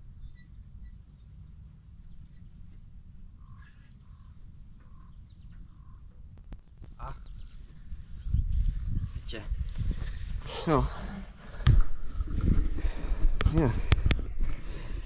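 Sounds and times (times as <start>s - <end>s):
bird calls: 0.2s - 9.3s
wind on microphone: 3.4s - 15.0s.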